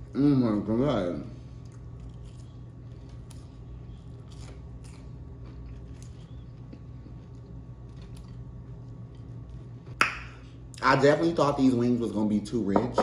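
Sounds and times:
steady low hum: 0.0 - 13.0
person chewing food: 1.4 - 10.0.

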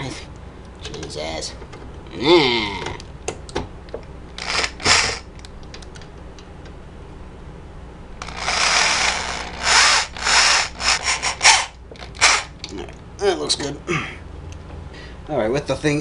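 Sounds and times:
electric drill running on metal: 4.4 - 5.3, 8.2 - 12.5.

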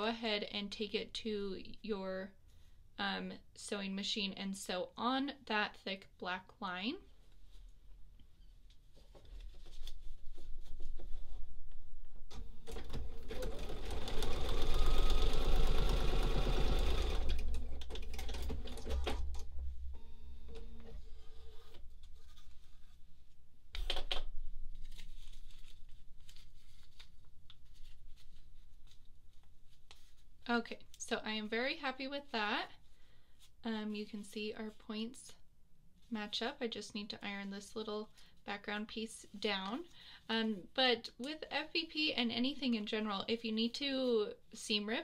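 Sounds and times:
sewing machine stitching: 12.7 - 19.2.

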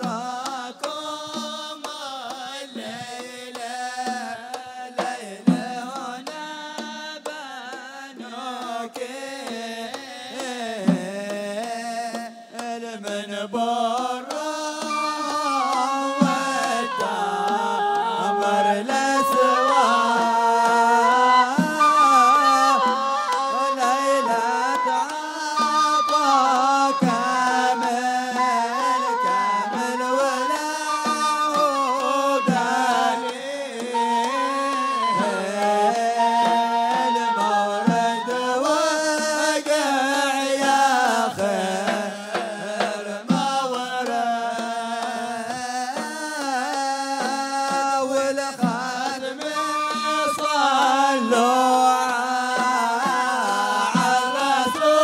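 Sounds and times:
drums beating: 0.0 - 39.8, 40.6 - 55.0
men singing together: 0.0 - 55.0
wooden flute melody: 13.8 - 42.0, 42.6 - 55.0.

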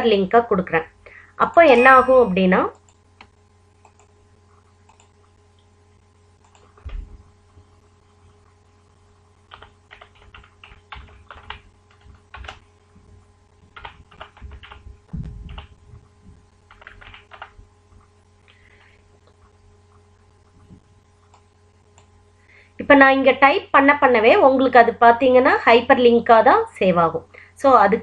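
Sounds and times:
faint steady hum: 0.0 - 28.0
computer keyboard typing: 4.8 - 5.2, 6.4 - 7.0, 9.5 - 12.7, 13.7 - 15.8, 16.7 - 17.6.

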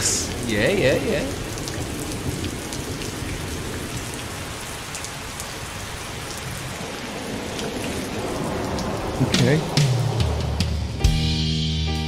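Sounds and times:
falling rain hiss: 0.0 - 11.1.

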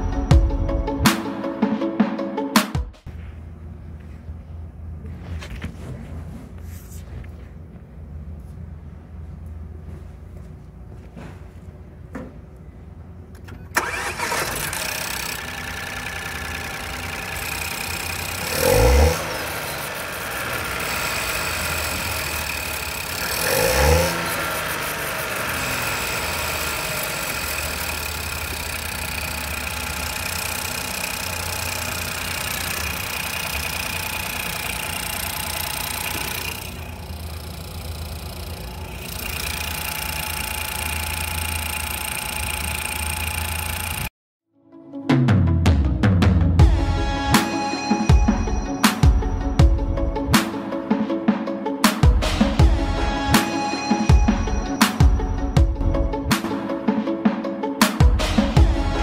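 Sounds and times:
car engine starting and idling: 12.0 - 44.1
engine revving: 13.8 - 44.1.

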